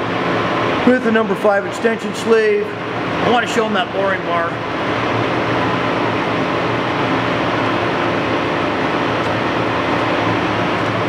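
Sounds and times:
machinery humming: 0.0 - 11.0.

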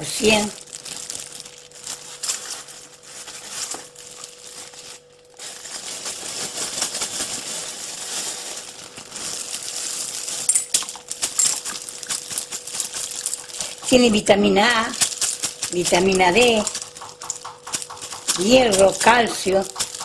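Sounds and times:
chickpeas clattering into metal pot: 15.0 - 20.0.

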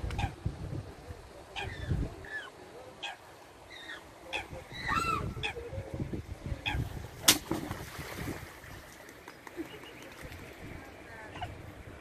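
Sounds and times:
loud splash into water: 7.2 - 8.5.

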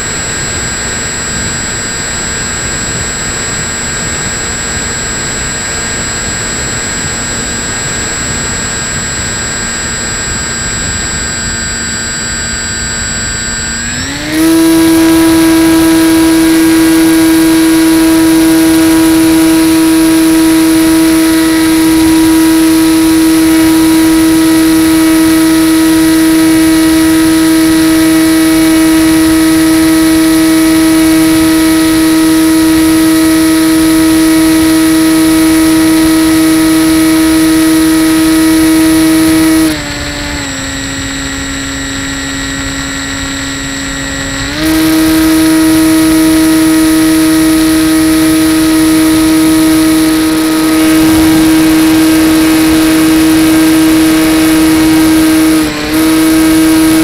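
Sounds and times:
electric motor and propeller whine: 0.0 - 57.0
rushing air: 44.4 - 57.0.

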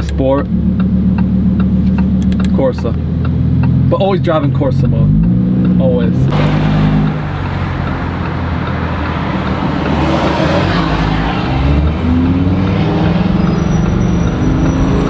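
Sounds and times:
sports car engine revving: 0.0 - 15.0.

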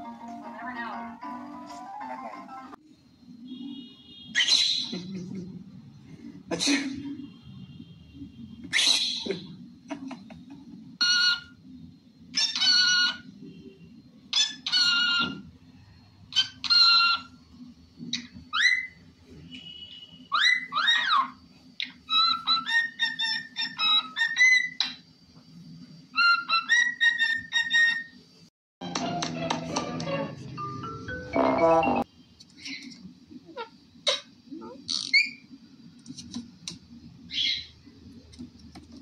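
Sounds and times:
parrots calling: 11.0 - 11.6, 12.3 - 13.3, 14.3 - 15.5, 16.3 - 17.4, 18.1 - 19.0, 20.3 - 25.0, 26.2 - 28.2, 33.6 - 35.4, 37.3 - 37.7
cockatiel whistling: 19.7 - 25.0, 26.2 - 28.1.

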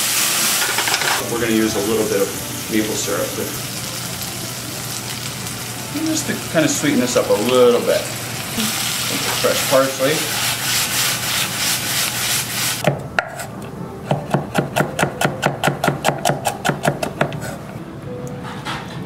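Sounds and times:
fruit sizzling in a pan: 0.0 - 12.9
knife chopping on cutting board: 14.1 - 17.6.

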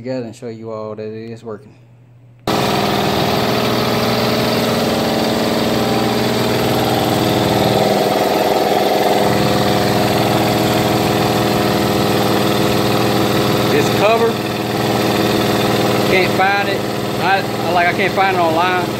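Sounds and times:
air compressor droning: 2.5 - 18.9.

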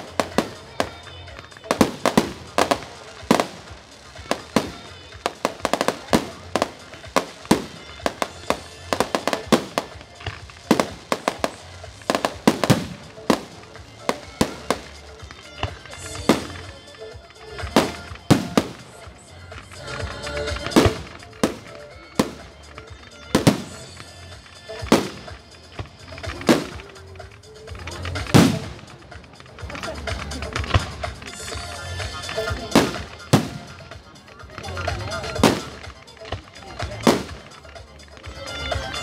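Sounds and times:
fireworks booms: 0.0 - 16.7, 17.6 - 19.7, 23.3 - 27.0, 28.1 - 29.0, 29.6 - 34.0, 34.8 - 37.6
fireworks bangs and crackles: 0.0 - 39.0
music playing: 0.0 - 39.0.

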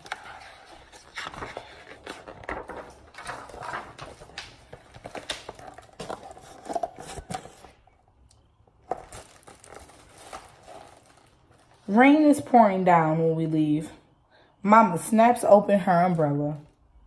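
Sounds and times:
paper pages rustling: 0.0 - 7.8.

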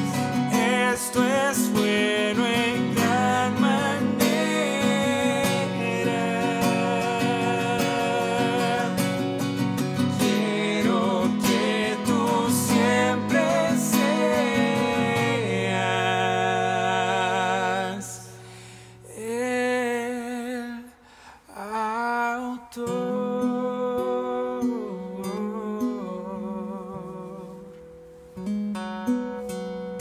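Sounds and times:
two men singing: 0.0 - 18.4
acoustic guitar: 0.0 - 30.0.

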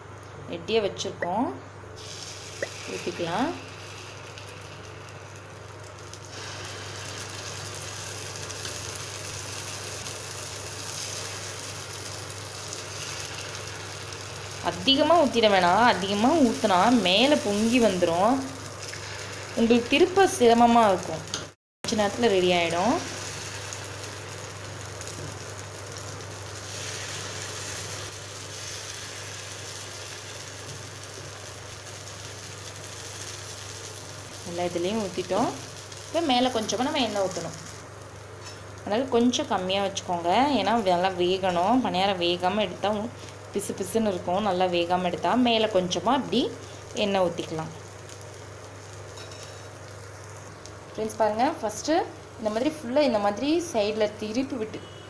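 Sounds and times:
steady low hum: 0.0 - 28.5
batter sizzling in oil: 2.0 - 55.0.

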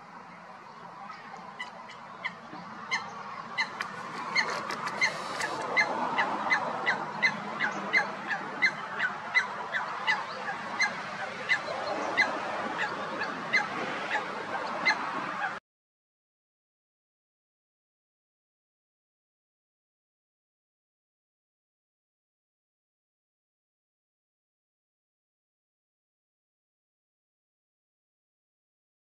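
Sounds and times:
steady background noise: 0.0 - 15.6
coot calling: 1.1 - 15.6.

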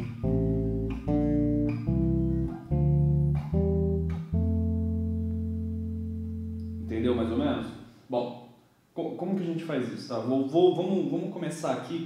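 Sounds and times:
electric bass plucked chords: 0.0 - 7.8.

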